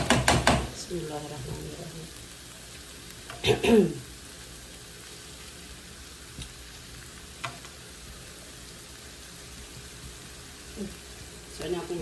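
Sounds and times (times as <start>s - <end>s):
metal spatula knocking on pan: 0.0s - 0.7s
sambal sizzling in a pan: 0.0s - 12.0s.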